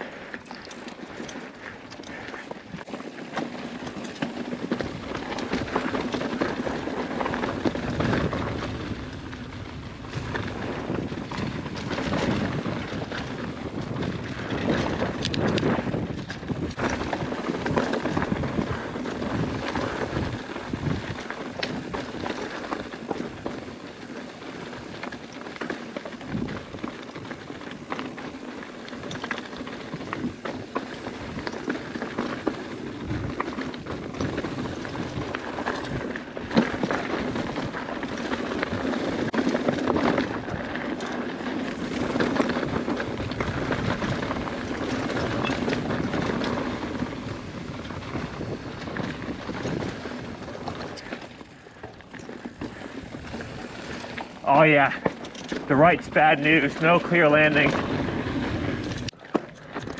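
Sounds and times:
bike rattle and clatter: 0.0 - 59.9
tyres crunching on gravel and rock: 16.6 - 59.9.

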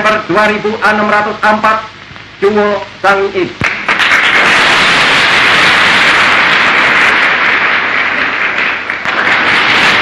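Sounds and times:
audience applauding: 3.6 - 10.0.

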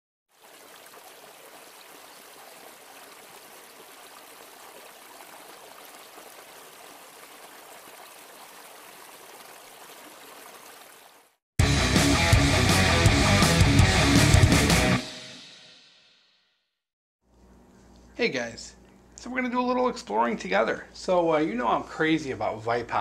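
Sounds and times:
stream flowing over rocks: 0.3 - 11.4.

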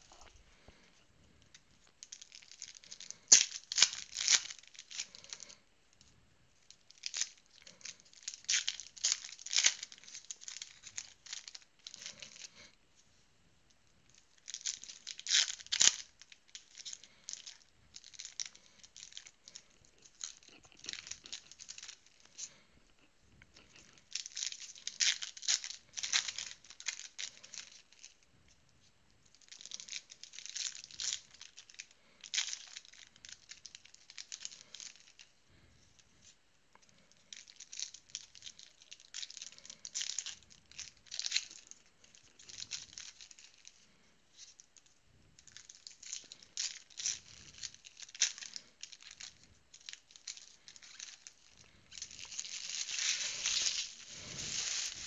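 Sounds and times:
foil wrappers crinkling: 1.8 - 5.6, 6.7 - 12.7, 14.2 - 22.6, 23.5 - 28.2, 29.3 - 35.3, 36.9 - 44.7, 45.4 - 55.0
card packs tearing open: 52.0 - 55.0.

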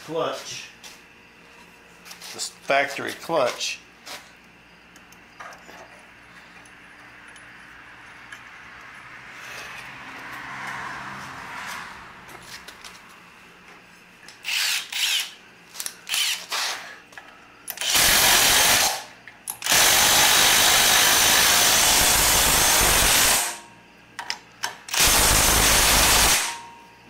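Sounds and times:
impact driver running: 14.4 - 15.4, 16.1 - 16.8, 17.7 - 23.6, 24.9 - 26.6.

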